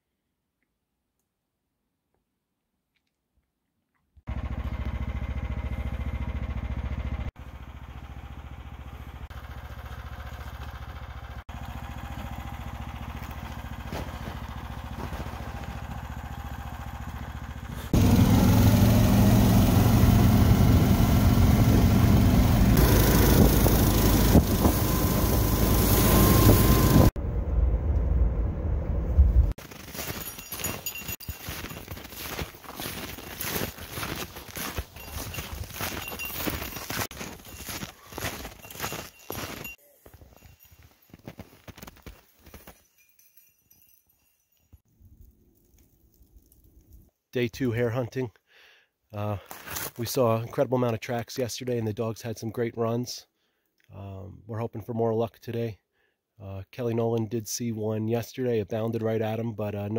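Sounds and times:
small engine running: 4.3s - 27.2s, 29.6s - 39.8s
footsteps crunching in snow: 12.9s - 17.2s, 29.6s - 43.4s, 49.4s - 50.1s
low rumbling noise: 20.7s - 29.6s.

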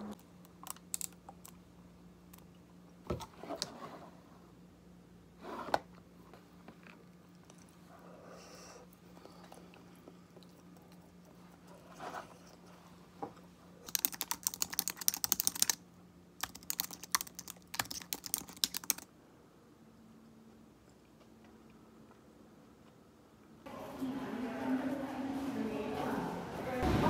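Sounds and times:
faint steady hum: 0.0s - 27.0s
rapid keyboard clicking: 13.8s - 15.8s, 16.4s - 19.1s.

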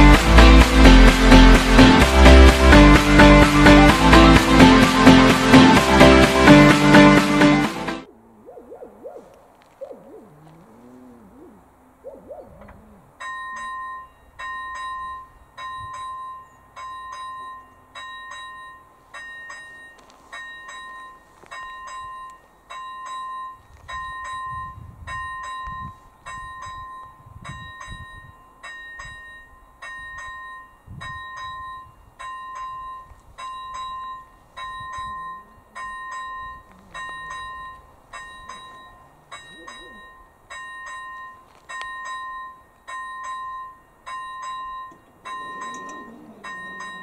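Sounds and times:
level crossing bell ringing: 13.2s - 47.0s.

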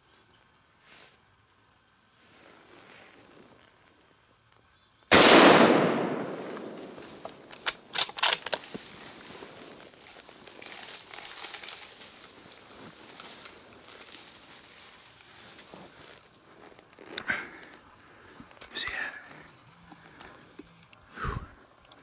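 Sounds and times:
rifle shot echoing: 5.1s - 7.9s.

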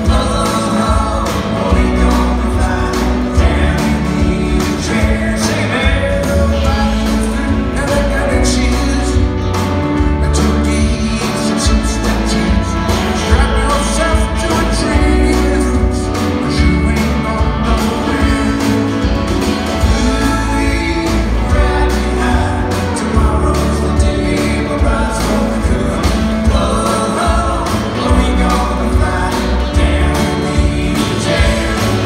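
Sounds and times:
lead vocal singing: 0.0s - 32.0s
live band playing: 0.0s - 32.0s.

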